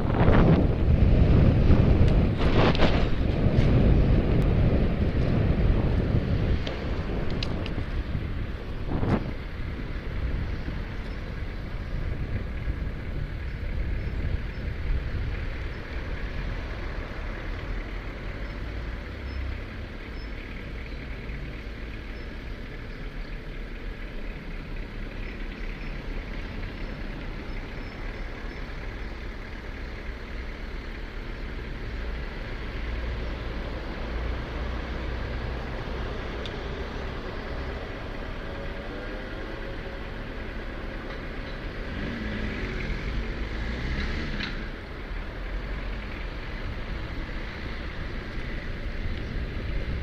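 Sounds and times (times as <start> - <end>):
wind buffeting microphone: 0.0 - 17.0
vehicle noise in traffic: 0.0 - 50.0.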